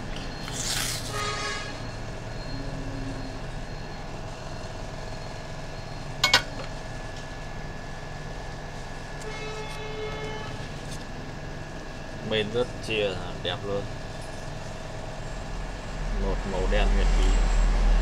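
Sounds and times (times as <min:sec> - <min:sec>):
steady background hum: 0:00.0 - 0:18.0
faint held tone: 0:01.8 - 0:06.8.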